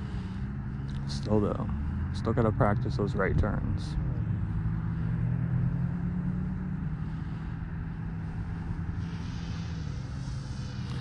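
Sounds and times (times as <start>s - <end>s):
low mechanical hum: 0.0s - 11.0s
even hiss: 9.0s - 11.0s.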